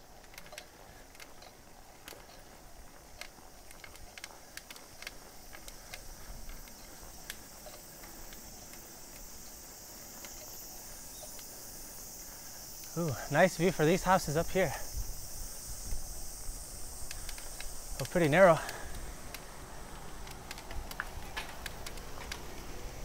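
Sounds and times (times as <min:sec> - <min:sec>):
bike clicks and ticks: 0:00.0 - 0:23.0
insects droning: 0:00.0 - 0:23.0
tyres rumbling on road: 0:17.8 - 0:23.0.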